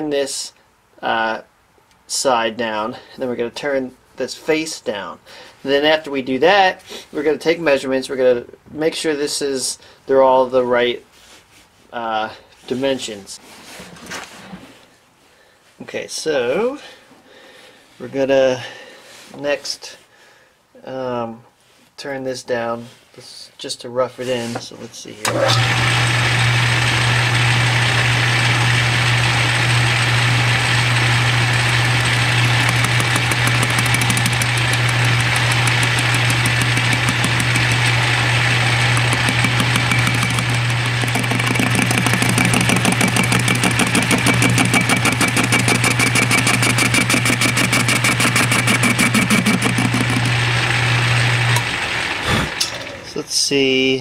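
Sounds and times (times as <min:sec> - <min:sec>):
lathe motor hum: 0:25.3 - 0:53.0
fast even pulsing: 0:30.2 - 0:50.8.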